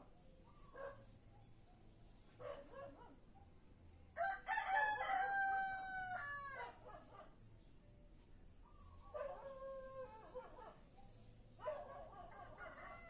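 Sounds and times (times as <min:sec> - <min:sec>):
rooster crowing: 0:04.2 - 0:06.7.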